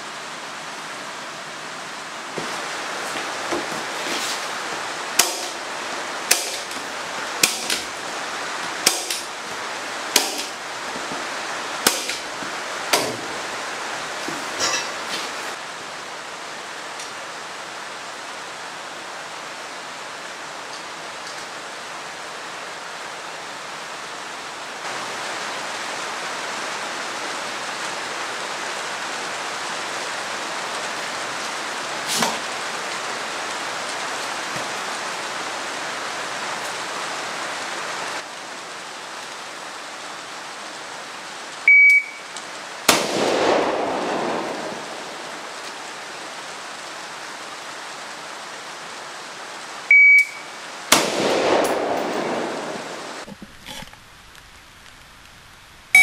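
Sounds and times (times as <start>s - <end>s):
rain hissing: 0.0s - 56.0s
rifle shot with ringing echo: 11.9s - 12.2s, 42.9s - 45.1s, 50.9s - 53.0s
shot timer beep: 41.7s - 42.3s, 49.9s - 50.5s.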